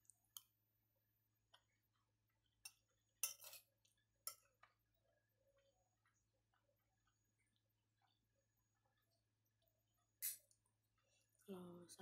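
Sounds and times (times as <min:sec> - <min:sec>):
metal spoon clinking on plate: 0:02.6 - 0:04.5.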